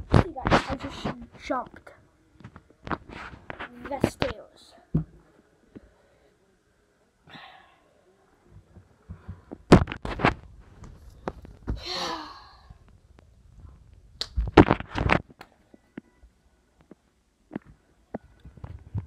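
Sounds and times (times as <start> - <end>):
knocks and thumps on camera: 8.6 - 11.8
boy crying out: 11.8 - 12.6.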